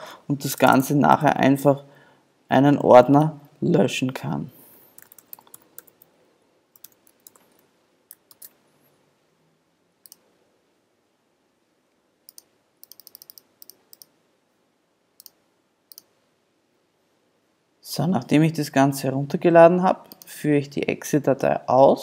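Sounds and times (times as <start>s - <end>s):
computer keyboard and mouse clicks: 5.0s - 6.1s, 6.8s - 8.6s, 12.3s - 14.1s, 15.2s - 16.1s.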